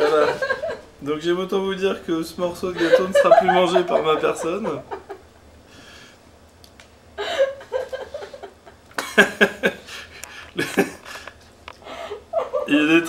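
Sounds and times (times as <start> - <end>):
laughter bursts: 2.8 - 5.2, 7.2 - 12.7.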